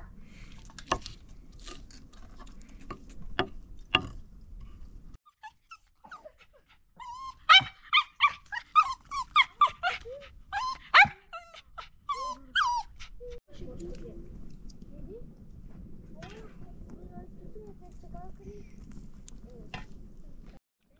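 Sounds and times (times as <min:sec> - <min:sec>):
dog whimpering and yipping: 0:05.3 - 0:13.4.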